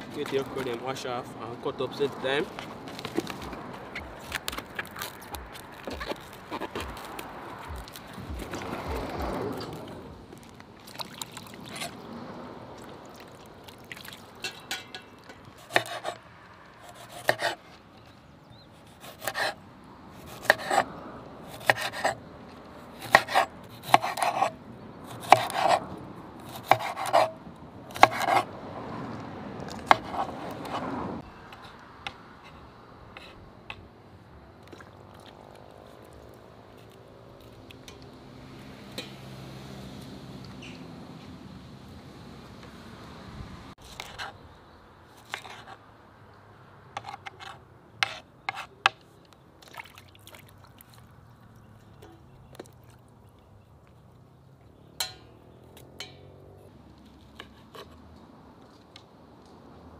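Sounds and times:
knife chopping on wooden board: 0:15.7 - 0:16.1, 0:23.0 - 0:24.5, 0:25.2 - 0:25.8, 0:26.5 - 0:27.4, 0:28.0 - 0:28.4, 0:29.9 - 0:30.8.

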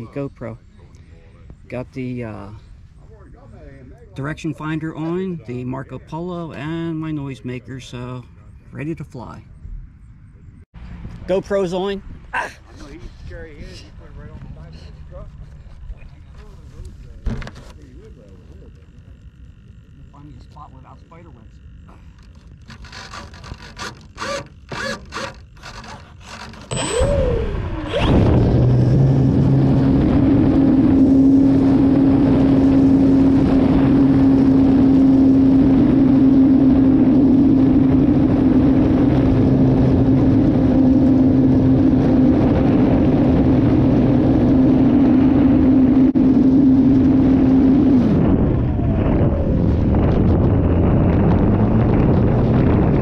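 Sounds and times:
model airplane engine: 0:12.8 - 0:53.0.

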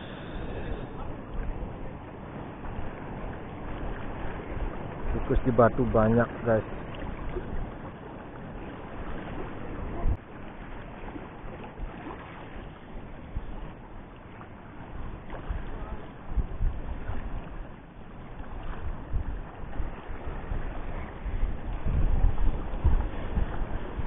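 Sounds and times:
waves washing against rocks: 0:00.0 - 0:13.8
wind buffeting microphone: 0:00.0 - 0:24.0.

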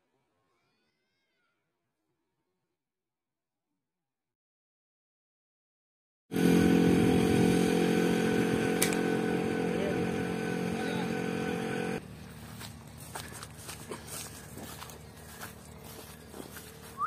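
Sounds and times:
small engine running: 0:06.3 - 0:17.0
faint footsteps: 0:12.0 - 0:17.0.

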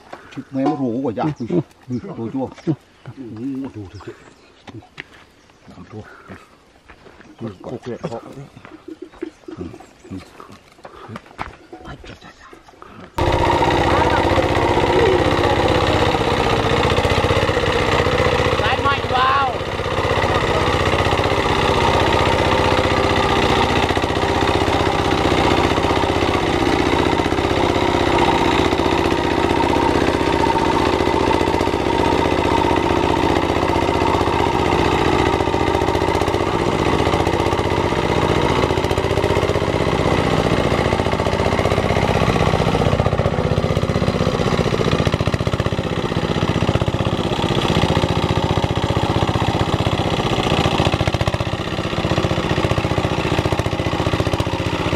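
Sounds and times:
wheels churning through mud: 0:13.1 - 0:54.9
diesel tractor engine running: 0:13.2 - 0:54.9.

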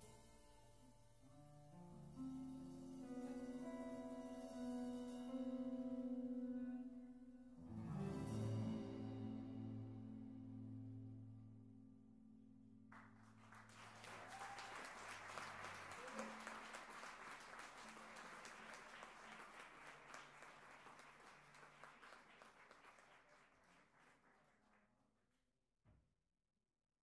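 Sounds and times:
held music notes: 0:00.0 - 0:12.4
audience applause: 0:12.9 - 0:24.8.

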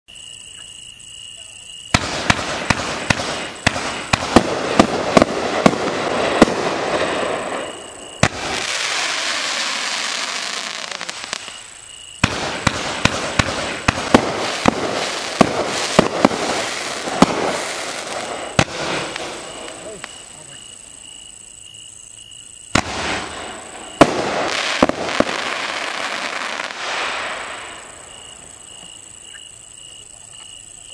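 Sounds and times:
fireworks hiss: 0:01.8 - 0:21.6, 0:22.4 - 0:30.4
fireworks launch thumps and bursts: 0:01.9 - 0:07.6, 0:12.2 - 0:20.2, 0:22.7 - 0:27.4.

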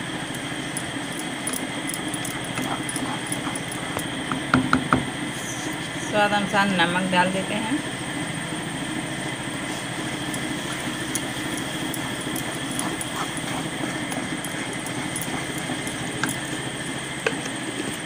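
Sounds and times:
paste roasting in a pan: 0:09.0 - 0:18.0.

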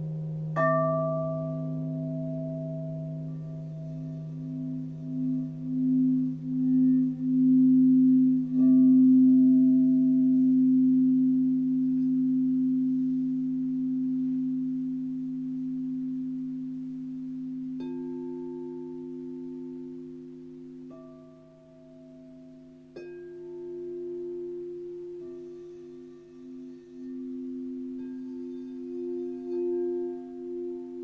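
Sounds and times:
large singing bowl humming: 0:00.0 - 0:31.0
small crystal bowl struck: 0:00.5 - 0:14.9.

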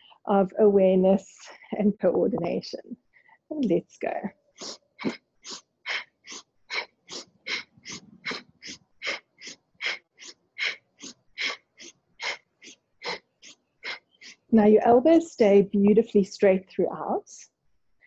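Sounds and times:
woman breathing quickly: 0:04.6 - 0:14.5.

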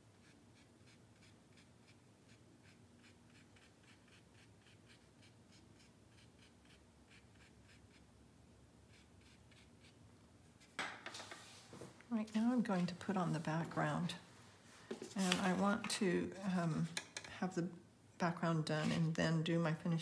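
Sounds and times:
brush scratching on paper: 0:00.2 - 0:08.0, 0:08.9 - 0:10.0.

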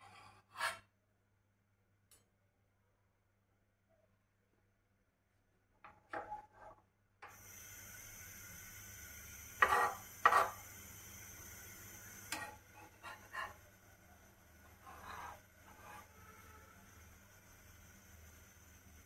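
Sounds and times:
spatula scraping griddle: 0:00.0 - 0:00.8, 0:09.6 - 0:10.7, 0:12.3 - 0:13.7, 0:14.6 - 0:16.4
hiss with high whine: 0:07.3 - 0:19.0.

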